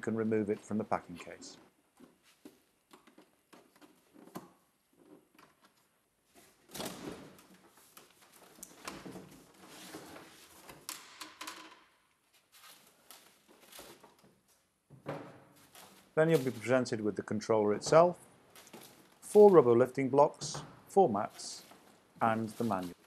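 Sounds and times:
scraping and rustling of packing: 1.9 - 10.9, 12.2 - 14.6, 15.5 - 16.7, 18.5 - 19.7, 21.3 - 23.0.

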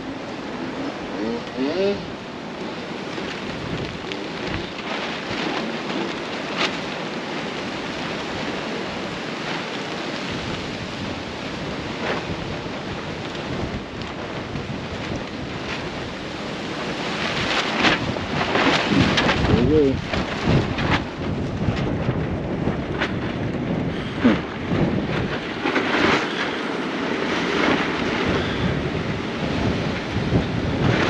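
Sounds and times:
gusty wind buffeting microphone: 0.0 - 31.0
tarps flapping in wind: 0.0 - 31.0.

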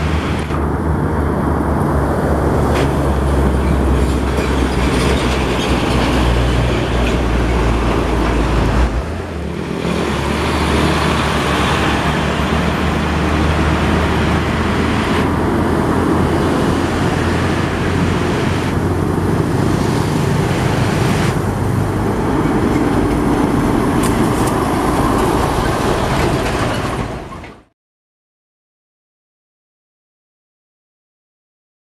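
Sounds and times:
deep engine drone: 0.0 - 27.2
highway traffic noise: 0.0 - 27.7.

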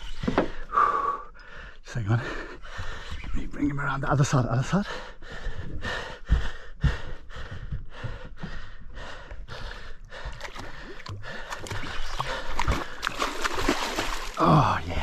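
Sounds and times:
water splashing: 10.3 - 15.0.

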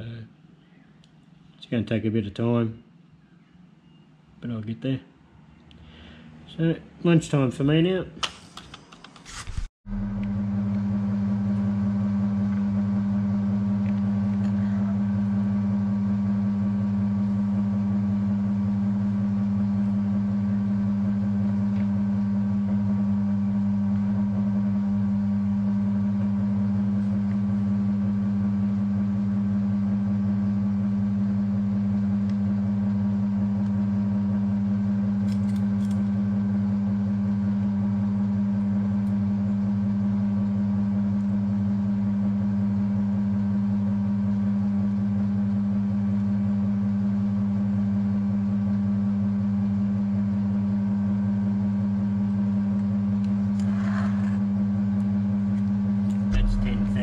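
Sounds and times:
milling machine humming: 53.2 - 57.0.

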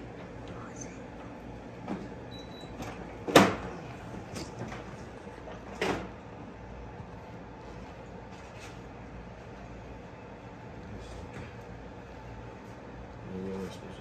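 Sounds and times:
low background hum: 0.0 - 14.0.

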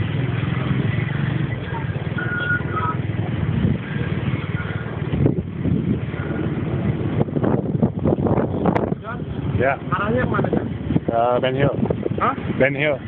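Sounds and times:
vehicle engine running low: 0.0 - 13.0
short high beeps: 2.1 - 3.0.

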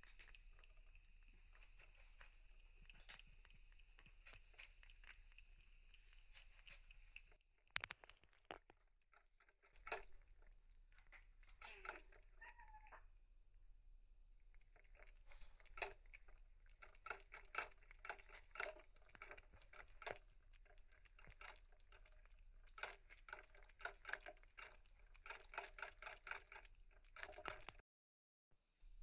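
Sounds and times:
soft clicks and rustles: 0.0 - 12.4.

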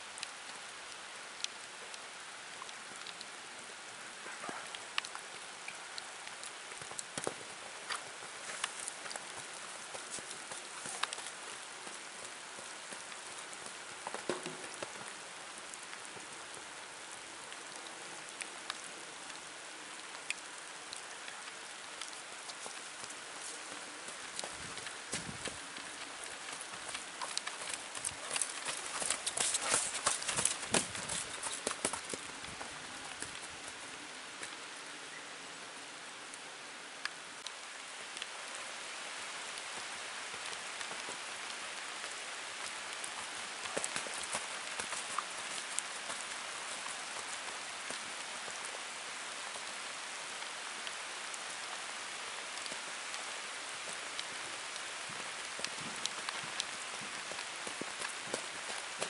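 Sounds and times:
steady hiss: 0.0 - 59.0
faint ticks: 4.2 - 16.8, 17.4 - 33.8.

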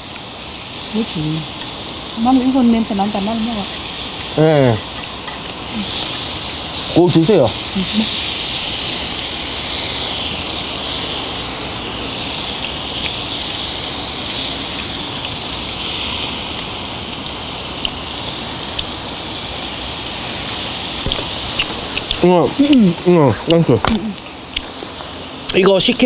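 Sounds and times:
meat sizzling on a grill: 0.0 - 26.0
small pops: 21.0 - 25.6.

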